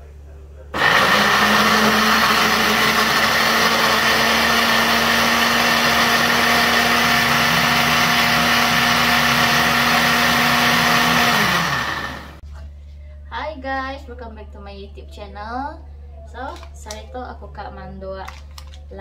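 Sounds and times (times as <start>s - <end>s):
blender motor whirring: 0.8s - 12.4s.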